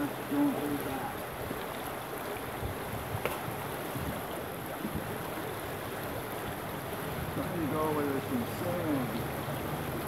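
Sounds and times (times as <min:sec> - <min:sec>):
stream running over rocks: 0:00.0 - 0:10.0.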